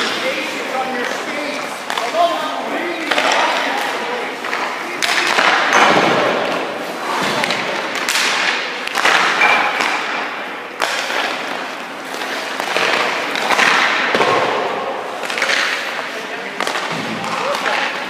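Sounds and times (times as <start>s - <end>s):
skate blades scraping ice: 6.3s - 14.1s, 15.0s - 18.0s.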